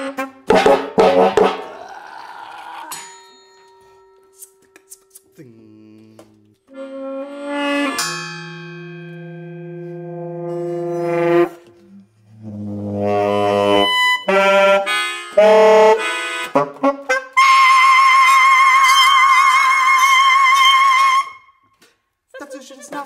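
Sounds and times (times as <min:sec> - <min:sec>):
tenor saxophone low notes: 0:04.8 - 0:08.2, 0:09.0 - 0:18.4.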